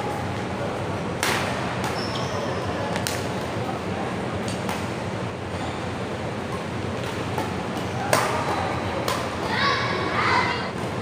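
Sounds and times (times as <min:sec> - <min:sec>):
rumble of indoor hall: 0:00.0 - 0:11.0
racket hitting shuttlecock: 0:01.2 - 0:02.0, 0:06.5 - 0:09.6.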